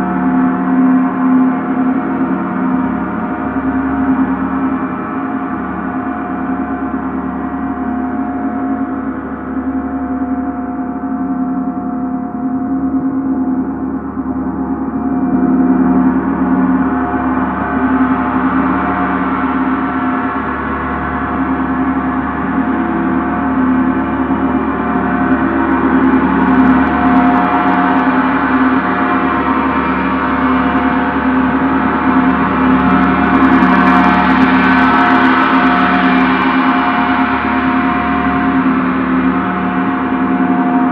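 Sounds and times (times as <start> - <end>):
gong ringing: 24.2 - 40.9.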